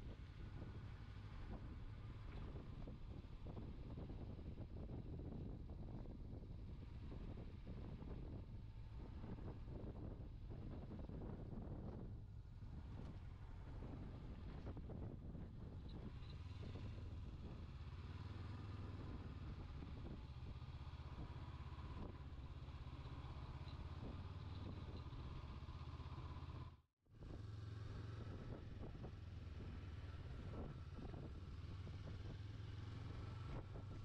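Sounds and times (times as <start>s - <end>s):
motorcycle engine running: 0.0s - 34.0s.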